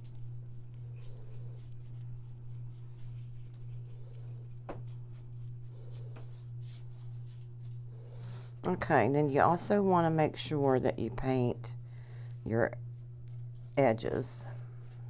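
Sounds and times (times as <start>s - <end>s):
paintbrush scratching and tapping: 0.0s - 7.8s
low hum: 0.0s - 15.0s.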